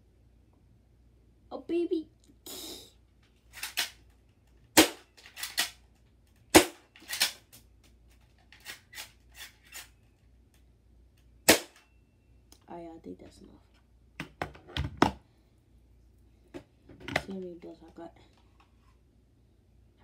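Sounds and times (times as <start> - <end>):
bb pistol snapping shots: 4.8 - 5.8, 6.5 - 7.4, 11.5 - 11.8.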